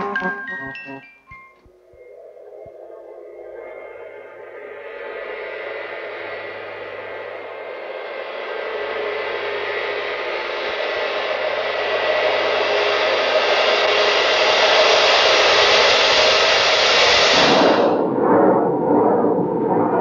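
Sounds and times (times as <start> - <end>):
wavering electronic tones: 0.0 - 4.8.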